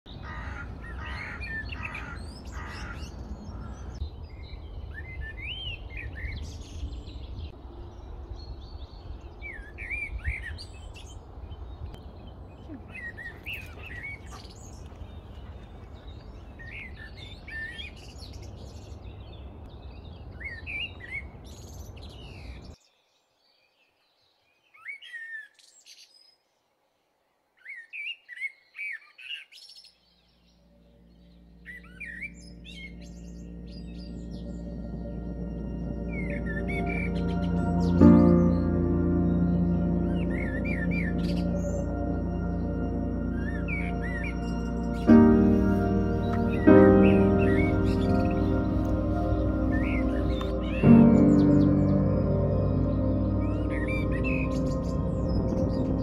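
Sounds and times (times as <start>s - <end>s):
small birds chirping: 0.1s - 26.6s, 27.6s - 56.0s
steady low rumble: 32.4s - 56.0s.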